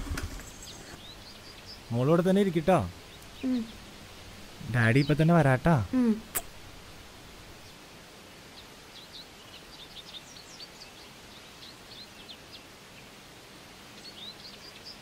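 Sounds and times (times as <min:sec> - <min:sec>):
faint forest ambience hiss: 0:00.0 - 0:15.0
small birds chirping: 0:00.0 - 0:15.0.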